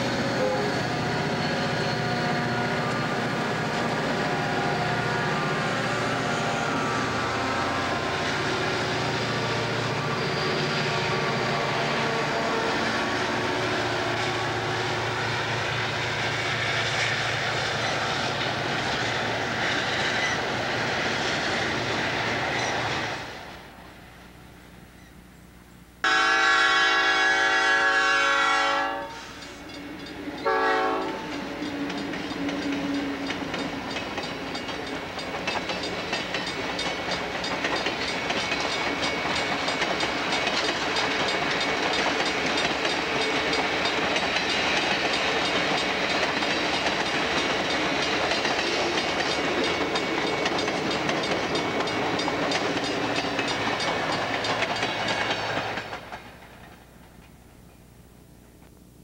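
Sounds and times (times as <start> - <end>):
locomotive horn blasts: 26.0 - 29.4, 30.4 - 31.4
train wheels clicking over rail joints: 29.2 - 57.9.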